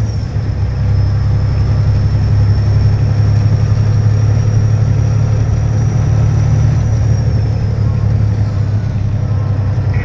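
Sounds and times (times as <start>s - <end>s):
road noise: 0.0s - 10.0s
truck engine droning: 0.0s - 10.0s.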